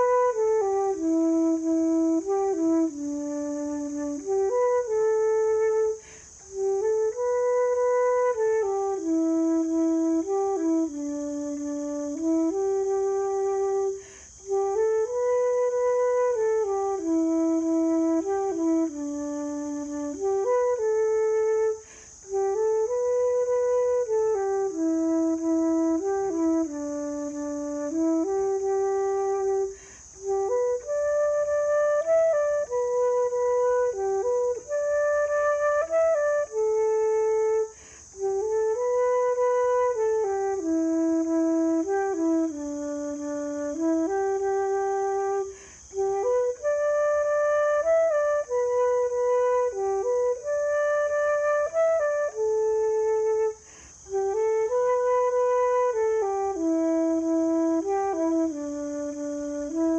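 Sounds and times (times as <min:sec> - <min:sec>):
solo flute playing slow folk air: 0:00.0 - 0:59.9
flute player breathing: 0:05.8 - 0:06.6, 0:13.8 - 0:14.5, 0:21.7 - 0:22.3, 0:29.5 - 0:30.3, 0:37.5 - 0:38.3, 0:45.2 - 0:46.1, 0:53.5 - 0:54.2.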